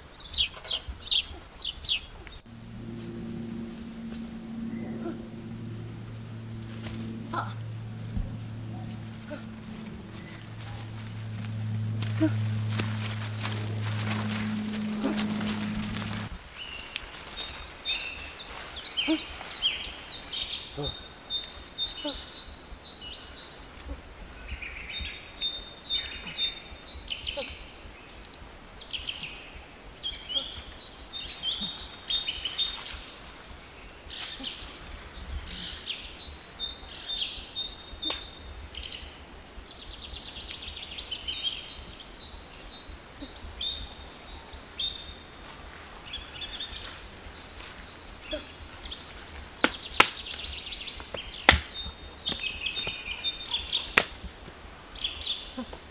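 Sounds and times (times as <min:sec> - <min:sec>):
birds chirping and calling: 0:46.1 - 0:54.3
stick knocking on ground: 0:51.5 - 0:53.0.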